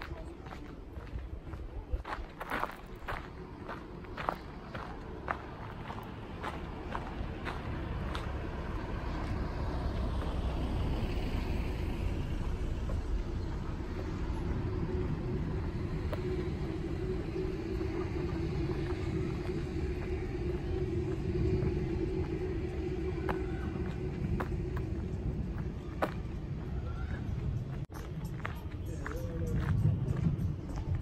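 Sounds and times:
steady hum: 0.0s - 28.8s
low rumble: 0.0s - 31.0s
car driving past: 4.5s - 27.6s.

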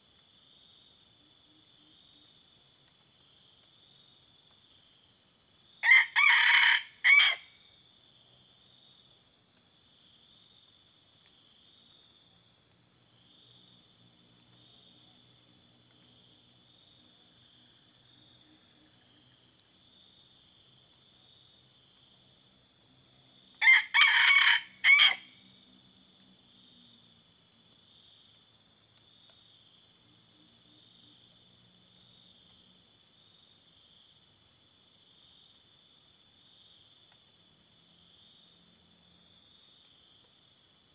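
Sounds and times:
rooster crowing: 5.8s - 7.5s, 23.6s - 25.4s.

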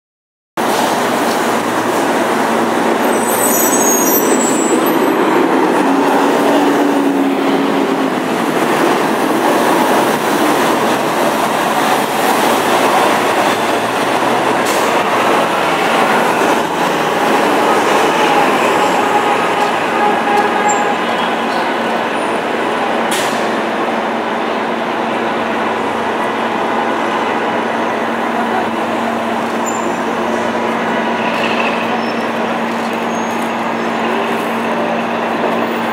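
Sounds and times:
street traffic: 0.6s - 35.9s
brief high squeal: 3.0s - 5.1s.

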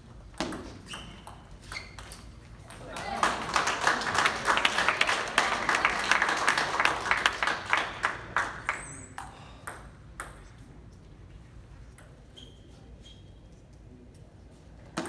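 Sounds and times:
spectators clapping: 2.8s - 9.0s.

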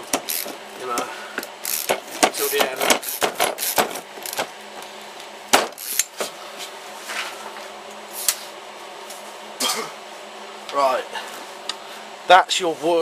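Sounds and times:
screwdriver driving screw into wood: 1.7s - 4.4s.

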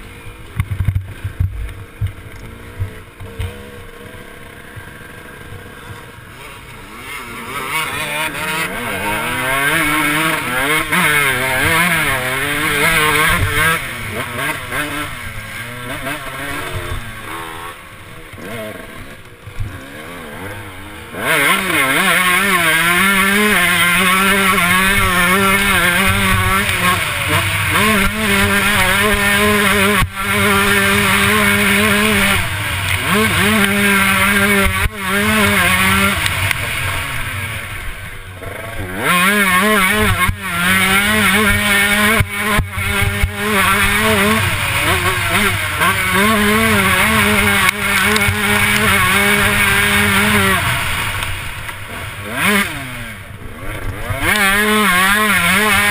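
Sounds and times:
motocross bike engine revving: 0.0s - 55.9s.

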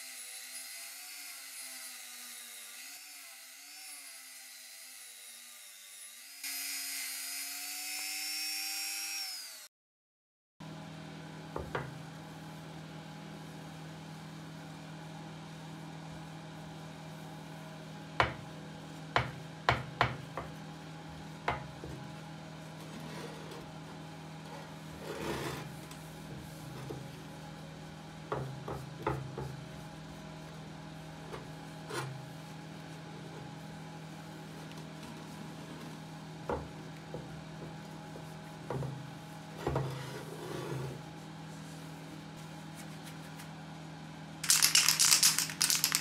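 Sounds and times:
rotary tool grinding steel: 0.0s - 9.7s.

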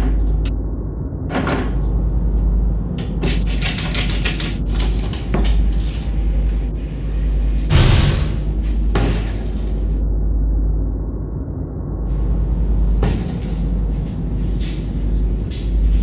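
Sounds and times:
steady low hum: 0.0s - 16.0s
loud thump: 7.7s - 9.3s.

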